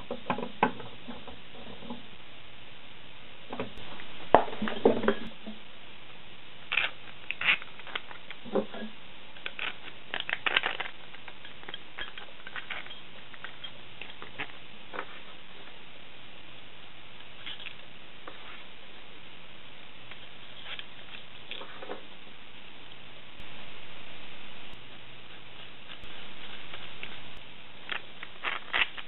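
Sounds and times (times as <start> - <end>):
steel rods and plastic parts clinking: 6.7 - 15.1.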